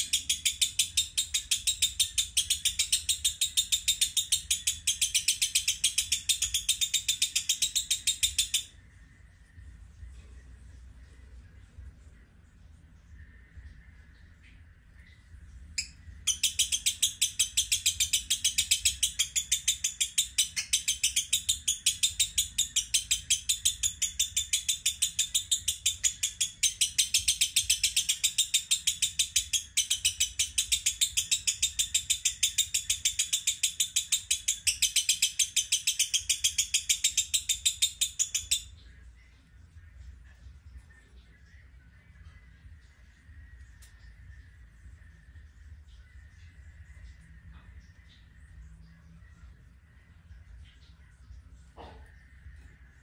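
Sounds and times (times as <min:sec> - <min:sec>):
lovebird chirping rapidly: 0:00.0 - 0:08.8, 0:15.8 - 0:38.8.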